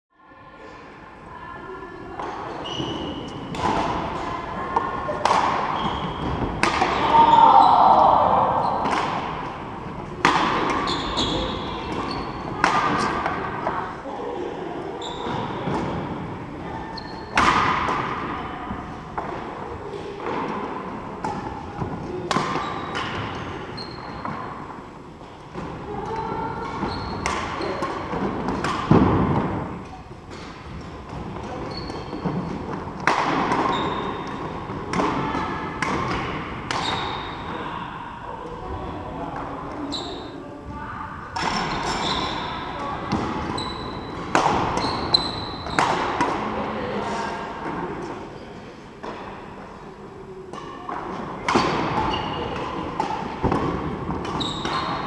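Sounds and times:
racket striking shuttlecock: 0:05.1 - 0:07.1, 0:08.8 - 0:09.5, 0:10.2 - 0:13.4
shoes squeaking on wooden floor: 0:05.7 - 0:06.6, 0:10.8 - 0:12.4, 0:31.5 - 0:32.5, 0:54.4 - 0:55.0.

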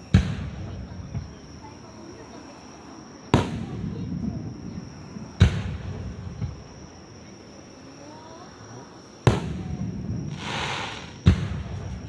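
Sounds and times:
fireworks bursting with bangs: 0:00.0 - 0:01.5, 0:03.3 - 0:06.8, 0:09.2 - 0:12.0
crackling hiss: 0:00.0 - 0:12.0.

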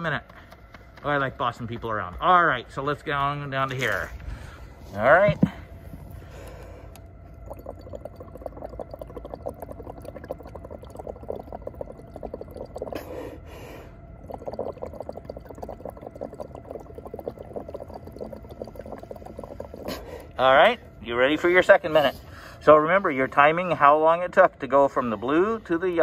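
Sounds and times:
bubbling through a straw: 0:05.2 - 0:20.4.

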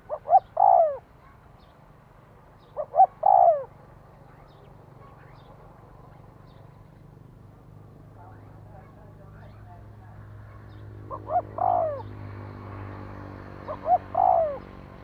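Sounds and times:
dove cooing: 0:00.0 - 0:01.4, 0:02.6 - 0:05.4, 0:11.0 - 0:12.2, 0:13.6 - 0:15.0.

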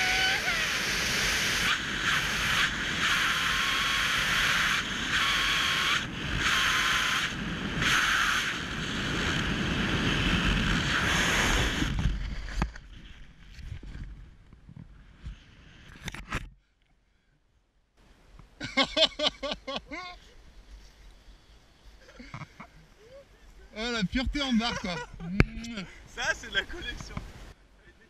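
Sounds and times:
wind rushing over microphone: 0:00.0 - 0:16.1.

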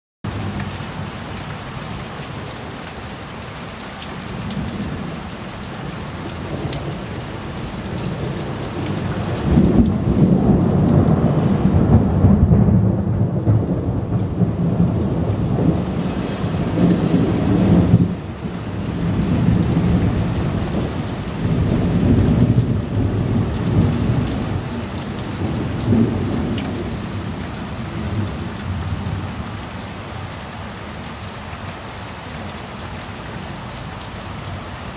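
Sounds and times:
steady rain falling: 0:00.3 - 0:34.9
thunder rolling: 0:08.0 - 0:18.2.

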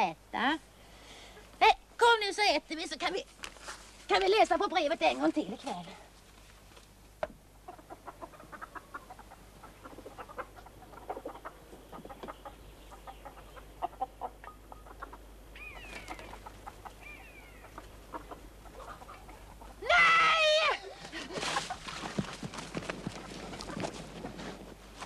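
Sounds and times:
hens clucking: 0:07.0 - 0:19.9, 0:20.7 - 0:25.0
higher gliding hen calls: 0:07.6 - 0:21.0.

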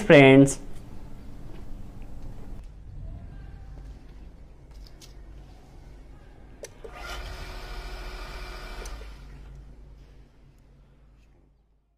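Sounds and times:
water pump motor whine: 0:06.9 - 0:09.5.

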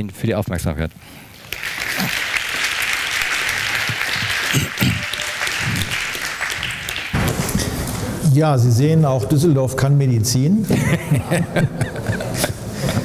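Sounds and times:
audience applauding: 0:01.3 - 0:07.2.

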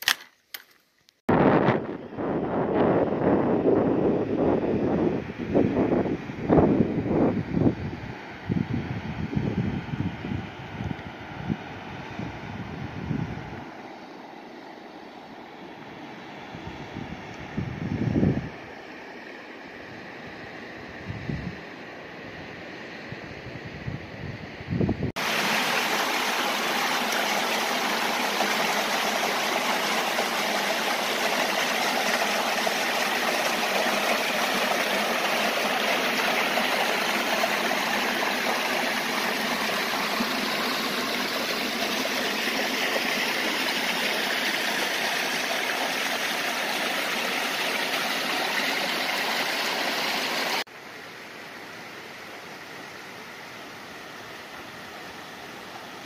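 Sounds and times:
creek flowing among boulders: 0:25.2 - 0:56.0
water rushing down a cascade: 0:25.2 - 0:56.0.

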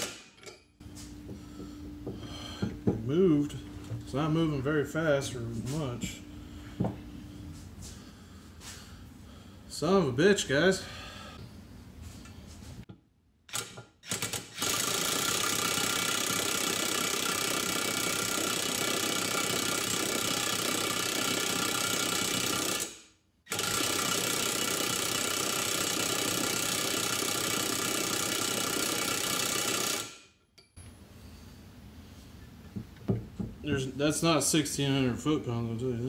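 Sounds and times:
impact wrench hammering: 0:00.0 - 0:00.6, 0:13.5 - 0:30.2.

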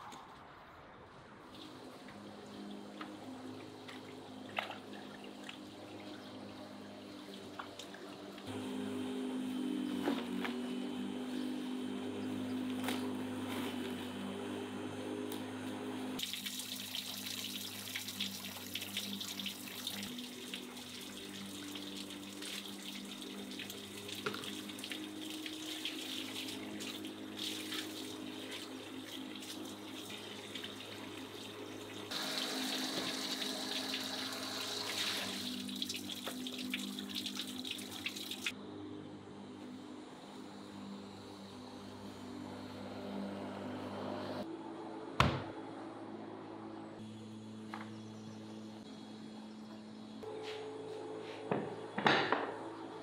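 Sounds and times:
electric lawn mower motor humming: 0:02.1 - 0:16.2, 0:18.5 - 0:37.1, 0:39.4 - 0:44.5
tap water splashing in sink: 0:35.9 - 0:38.5.

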